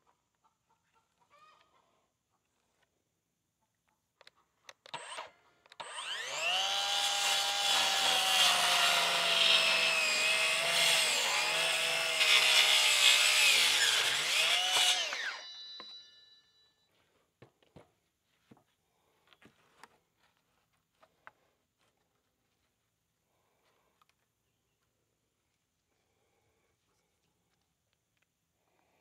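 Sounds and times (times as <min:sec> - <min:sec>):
circular saw cutting wood: 0:05.8 - 0:15.9.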